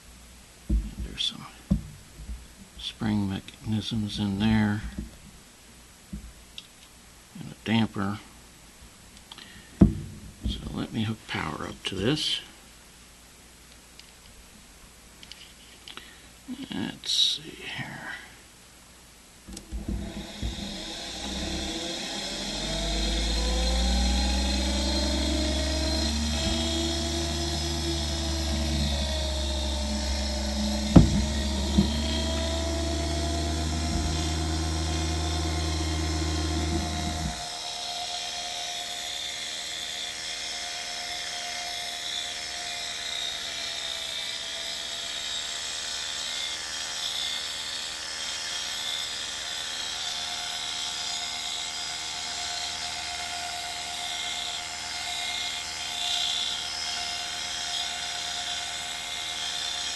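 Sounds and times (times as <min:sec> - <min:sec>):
gyro motor whining: 0:19.6 - 0:59.9
deep hum: 0:19.8 - 0:37.5.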